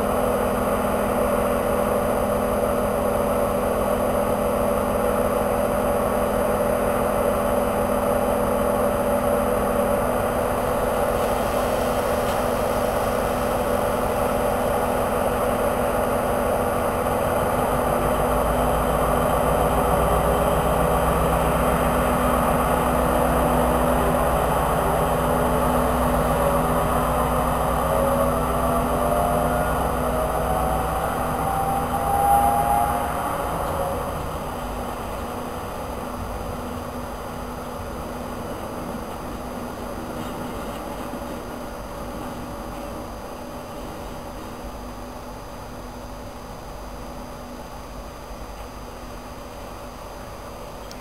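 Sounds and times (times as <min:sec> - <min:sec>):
rising whine: 0:00.0 - 0:40.1
diesel locomotive engine: 0:00.0 - 0:51.0.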